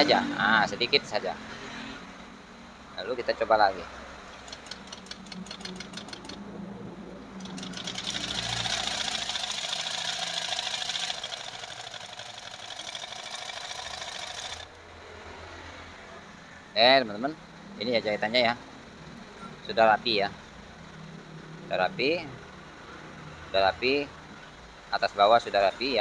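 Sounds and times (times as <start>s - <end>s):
sewing machine stitching: 4.4s - 6.4s, 7.4s - 14.7s.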